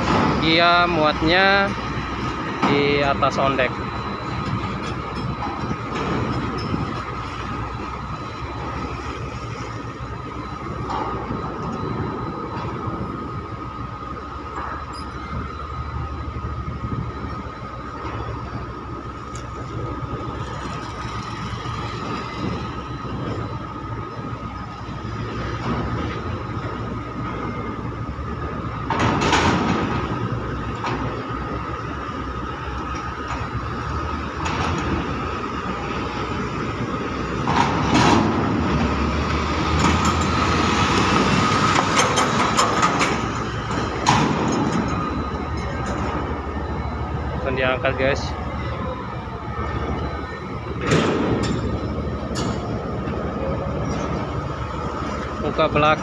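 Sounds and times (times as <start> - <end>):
constant high whine: 0.0 - 56.0
machinery engines rumbling: 0.0 - 56.0
truck diesel engine passing: 30.0 - 56.0
metallic clanks and knocks: 41.7 - 46.2.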